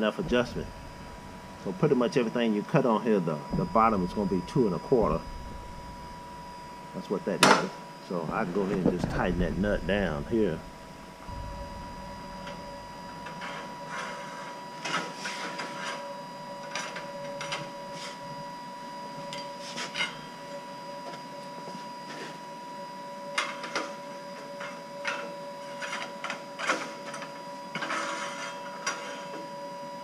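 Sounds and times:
steady hum: 0.0s - 18.6s.

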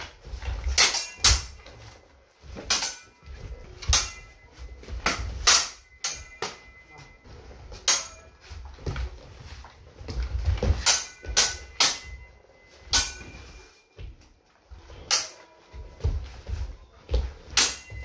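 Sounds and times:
metal sabres clanging: 0.0s - 14.2s, 14.8s - 16.3s, 17.1s - 18.0s
blade ringing: 0.6s - 1.8s, 2.6s - 8.4s, 10.6s - 14.0s, 17.6s - 18.0s.

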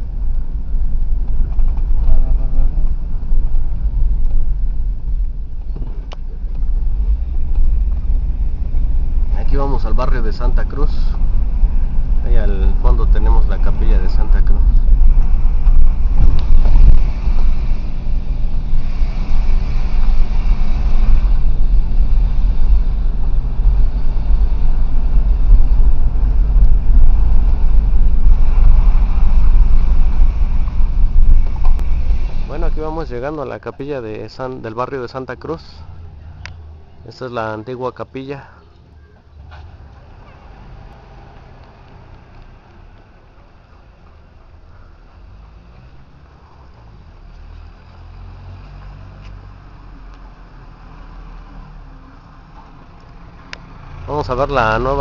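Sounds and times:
car engine and road rumble: 0.0s - 55.0s.

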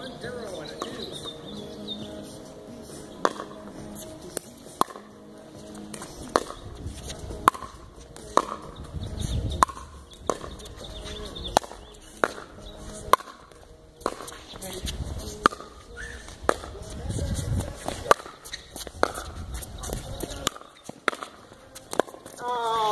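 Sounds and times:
paddles striking plastic ball: 3.2s - 8.8s, 9.6s - 14.6s, 15.3s - 16.8s, 17.7s - 22.4s.

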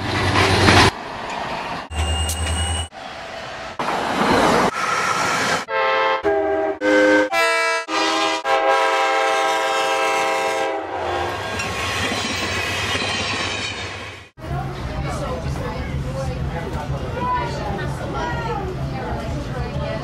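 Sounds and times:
train horn blasts: 5.7s - 11.4s.

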